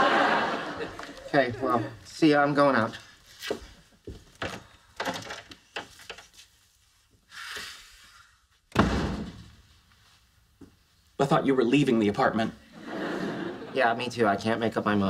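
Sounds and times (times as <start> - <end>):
footsteps: 0.9 - 4.8, 9.2 - 11.1
heavy thump: 8.7 - 9.6.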